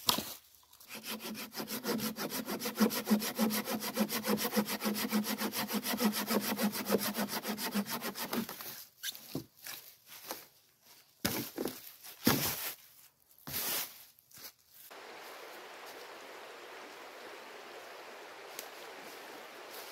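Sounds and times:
hand saw cutting log: 0.9 - 8.6
footsteps in dry leaves: 11.9 - 16.3, 17.8 - 19.9.

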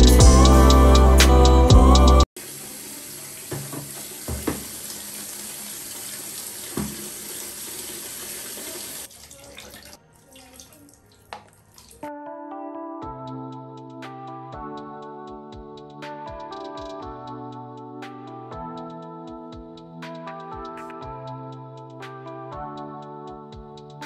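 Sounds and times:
water running into a bucket: 2.4 - 12.1.

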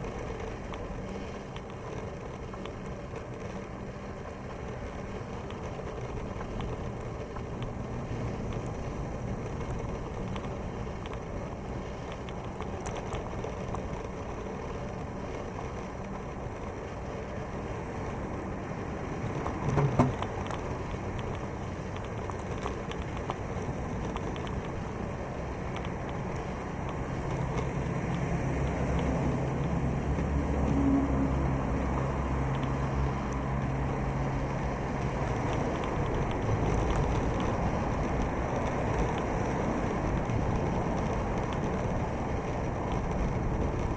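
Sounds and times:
bicycle tyre rolling on concrete: 0.0 - 43.9
wind rumbling on microphone: 17.5 - 43.9.

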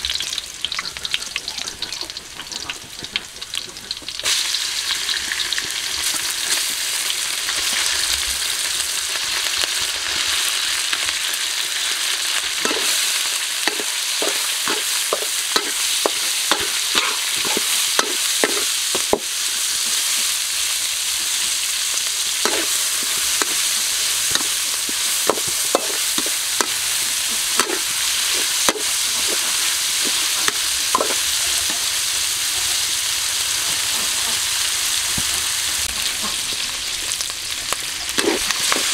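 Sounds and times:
meat sizzling in hot oil: 0.0 - 38.9
metal spatula scraping wok: 12.4 - 34.6, 37.9 - 38.9.

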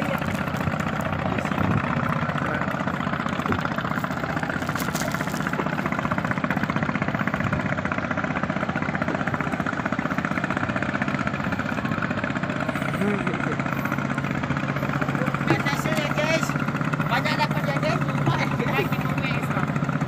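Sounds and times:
boat engine running: 0.0 - 20.0.

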